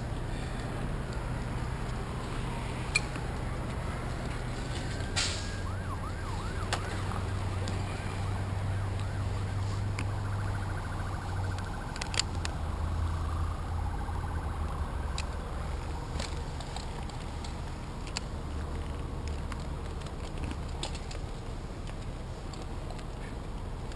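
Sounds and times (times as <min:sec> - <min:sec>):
emergency vehicle siren: 0:00.0 - 0:17.9.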